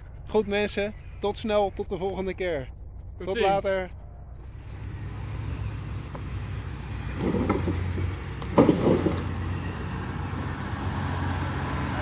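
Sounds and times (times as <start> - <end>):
road noise: 0.0 - 12.0
car engine humming: 2.8 - 12.0.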